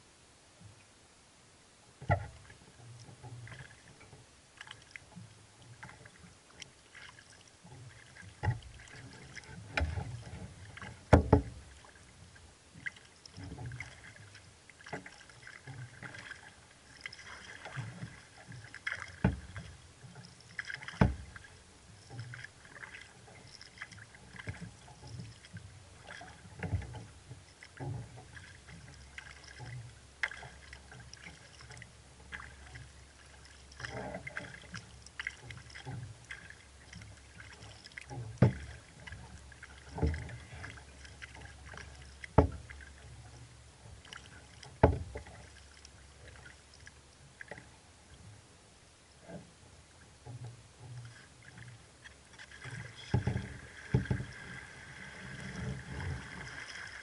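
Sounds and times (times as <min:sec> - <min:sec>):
water slapping against hull: 0:02.0 - 0:48.3, 0:50.1 - 0:57.0
paddle splashing and dripping: 0:02.0 - 0:48.4, 0:49.9 - 0:57.0.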